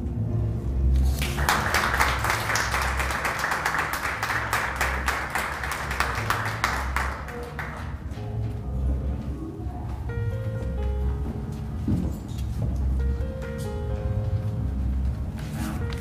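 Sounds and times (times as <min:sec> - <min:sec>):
audience applauding: 0:01.1 - 0:08.1.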